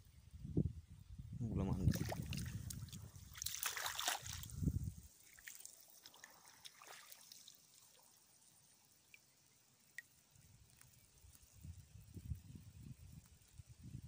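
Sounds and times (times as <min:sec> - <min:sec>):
water splashing and trickling: 0:01.5 - 0:14.0
faint drips and ticks: 0:02.2 - 0:14.0.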